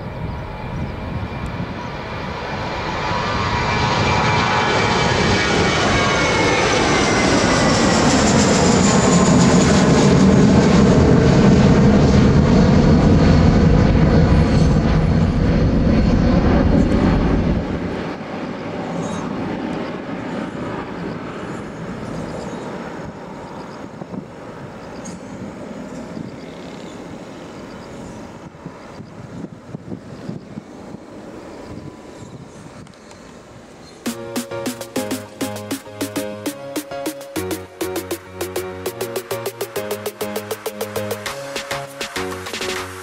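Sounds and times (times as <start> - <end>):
jet engine roar: 0.0 - 23.6, 34.6 - 43.0
jet engine low rumble: 0.0 - 25.9
jet engine whine: 0.0 - 34.6.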